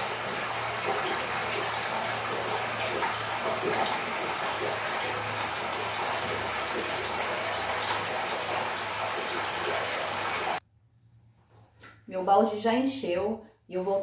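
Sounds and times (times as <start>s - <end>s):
water pouring into a bucket: 0.0s - 10.6s.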